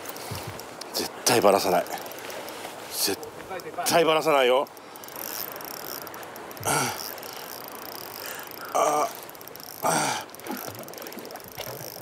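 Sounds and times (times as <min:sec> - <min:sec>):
fishing reel whirring: 0:01.5 - 0:02.6, 0:04.7 - 0:12.0.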